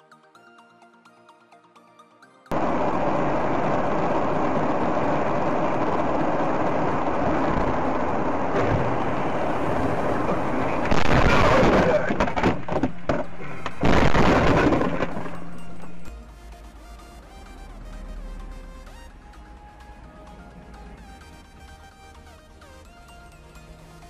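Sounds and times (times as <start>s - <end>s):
car road and engine noise: 2.5s - 24.0s
car crash knocks and crunches: 10.9s - 16.0s.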